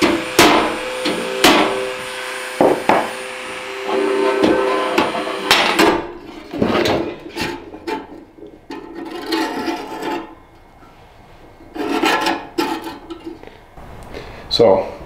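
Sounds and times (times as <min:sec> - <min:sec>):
sharp metal knocks: 0:00.0 - 0:02.0
sheet metal disc scraping: 0:00.0 - 0:13.7.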